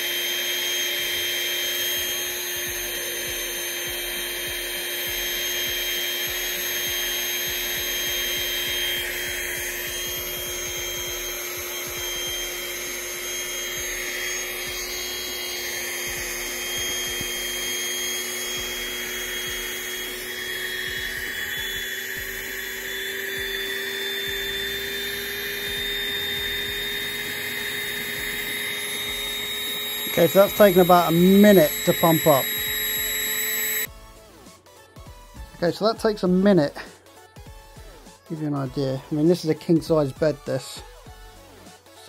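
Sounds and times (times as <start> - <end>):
electric air inflator whirring: 0.0 - 39.2.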